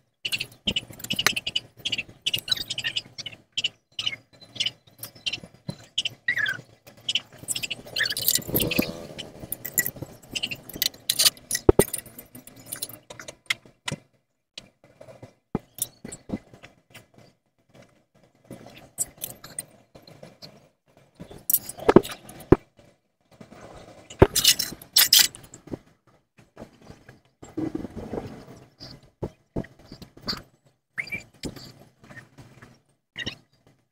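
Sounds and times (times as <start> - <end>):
metallic clinks and taps: 9.5 - 13.3.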